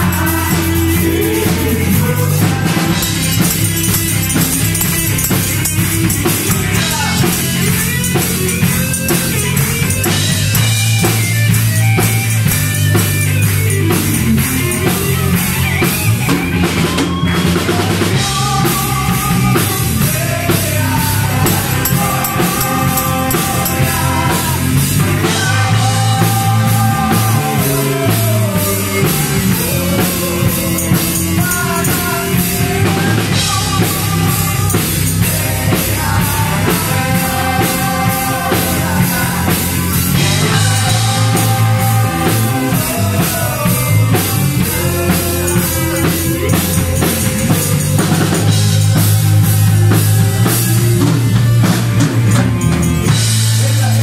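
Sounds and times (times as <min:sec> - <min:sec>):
drum kit rock beat: 0:00.0 - 0:54.0
electric guitars: 0:00.0 - 0:54.0
keyboard: 0:00.0 - 0:54.0
choir singing a hymn: 0:18.2 - 0:49.6.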